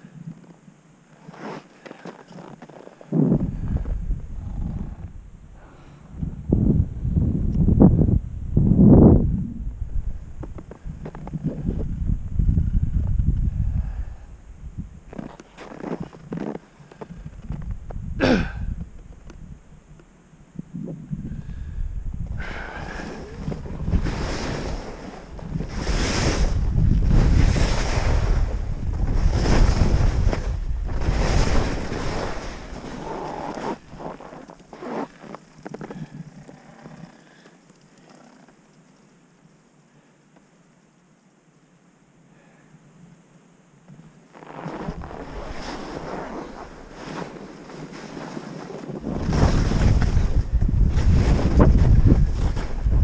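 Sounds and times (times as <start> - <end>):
skis scraping over snow: 1.1 - 3.7, 15.1 - 17.6, 22.5 - 37.1, 44.3 - 53.0
wind buffeting microphone: 3.1 - 15.3, 17.1 - 19.8, 20.6 - 34.2, 49.0 - 53.0.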